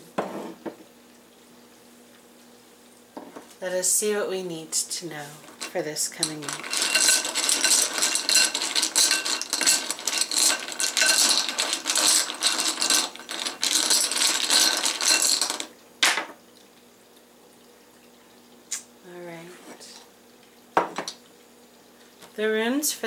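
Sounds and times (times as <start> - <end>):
pieces rattling in a bowl: 5.4 - 15.8.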